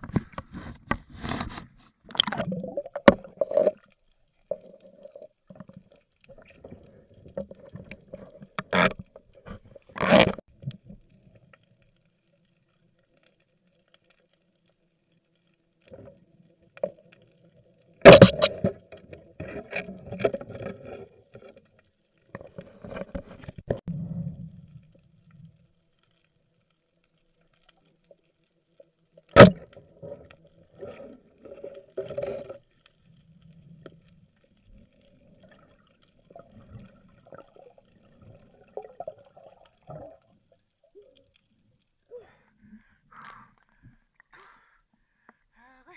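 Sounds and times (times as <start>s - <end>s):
bubbling water: 2.1s - 9.4s, 29.3s - 41.2s.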